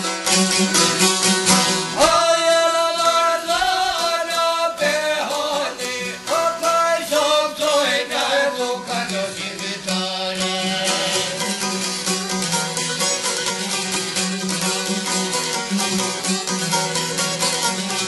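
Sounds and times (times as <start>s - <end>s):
plucked lutes: 0.0s - 18.0s
man singing long notes: 1.9s - 11.7s.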